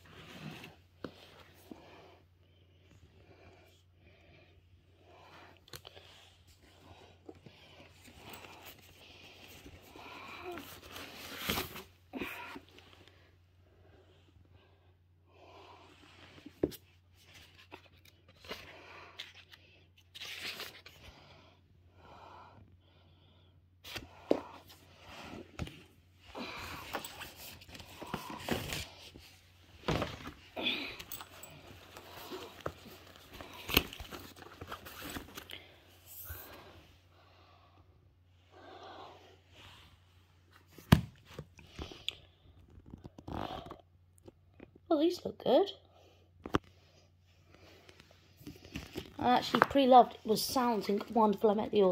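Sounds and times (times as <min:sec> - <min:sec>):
books rustling and crinkling: 0:00.0 - 0:02.0, 0:05.6 - 0:13.1, 0:16.2 - 0:21.1, 0:23.8 - 0:36.6, 0:47.4 - 0:51.9.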